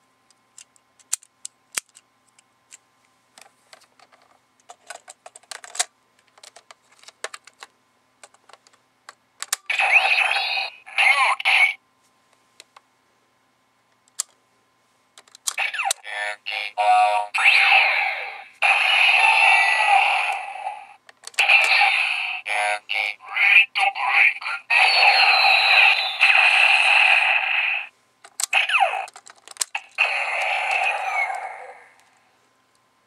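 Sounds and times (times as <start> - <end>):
plastic toy clicks: 0.6 - 2.0, 9.4 - 9.7, 15.2 - 16.0, 28.3 - 31.4
toy electronic voice calls: 9.7 - 11.8, 15.6 - 32.0.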